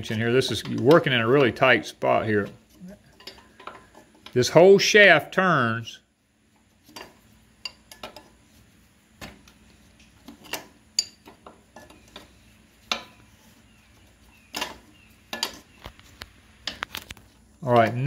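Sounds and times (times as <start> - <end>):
wrench clinking on metal nut: 10.5 - 12.0.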